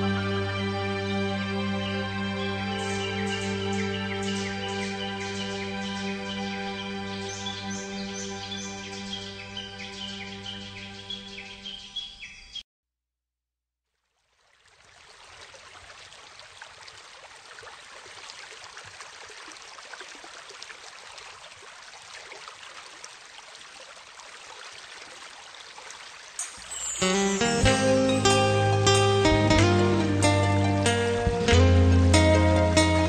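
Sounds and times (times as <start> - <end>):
background music with held notes: 0.0 - 11.5, 26.7 - 33.0
countryside background hiss: 0.0 - 12.4, 14.6 - 33.0
faint bird chirps: 26.5 - 27.7.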